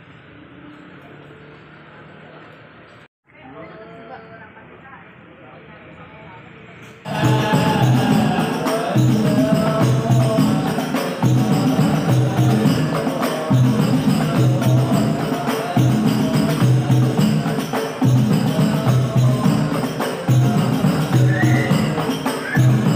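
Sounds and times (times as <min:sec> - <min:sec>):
frame drums playing rhythm: 0:07.1 - 0:22.9
man singing into microphone: 0:07.1 - 0:22.9.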